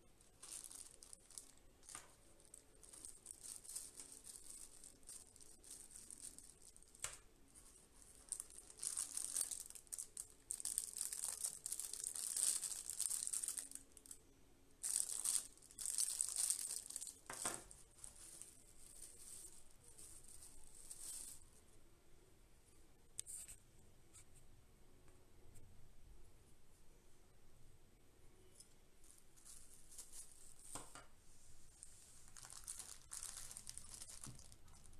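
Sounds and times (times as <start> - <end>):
plastic bags crinkling: 0.0 - 14.2, 14.8 - 21.5, 29.0 - 31.1, 31.7 - 34.9.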